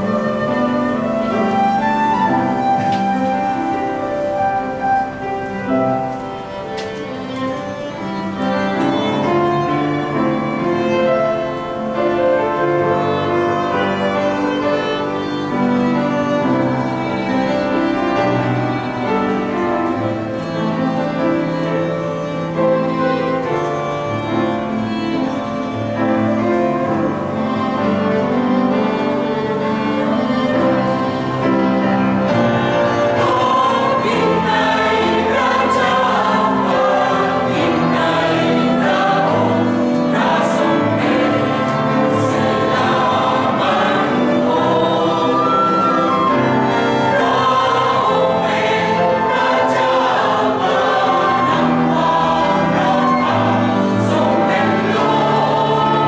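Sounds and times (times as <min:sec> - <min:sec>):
wooden flute playing melody: 0:00.0 - 0:19.5, 0:20.1 - 0:56.0
violin playing long notes: 0:00.0 - 0:56.0.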